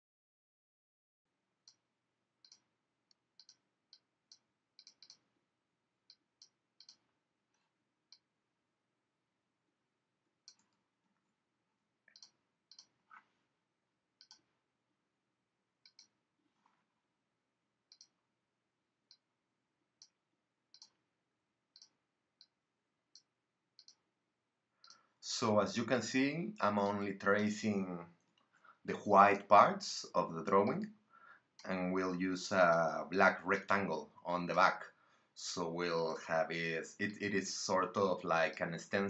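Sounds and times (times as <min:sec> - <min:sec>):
computer mouse clicks: 0:02.4 - 0:02.7, 0:03.4 - 0:05.3, 0:06.1 - 0:08.3, 0:10.4 - 0:10.8, 0:12.1 - 0:13.3, 0:14.2 - 0:14.5, 0:15.8 - 0:16.2, 0:17.9 - 0:18.2, 0:20.0 - 0:21.0, 0:21.7 - 0:24.0.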